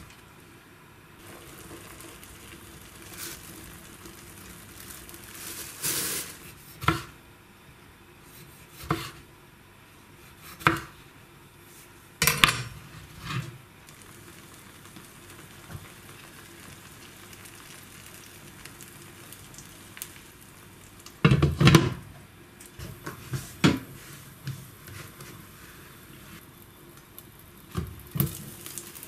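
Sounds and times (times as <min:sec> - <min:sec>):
omelette sizzling in a pan: 0:01.2 - 0:07.2, 0:12.6 - 0:29.0.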